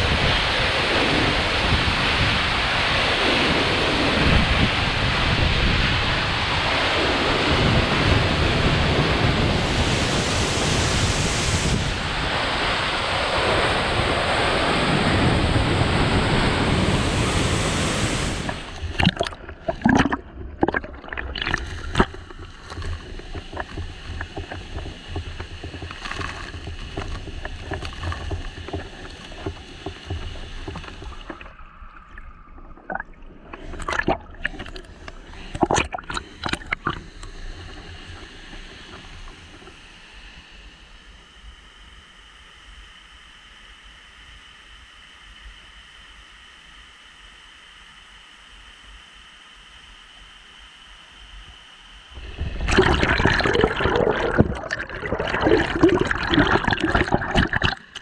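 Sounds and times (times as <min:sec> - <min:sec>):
waterfall roar: 0:00.0 - 0:18.9
flowing water: 0:00.0 - 0:41.1, 0:52.1 - 0:58.0.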